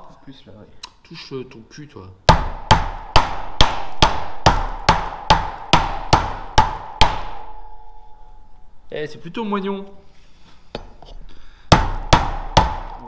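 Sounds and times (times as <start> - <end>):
hammer knocking on wooden plank: 2.3 - 7.5, 11.7 - 13.0.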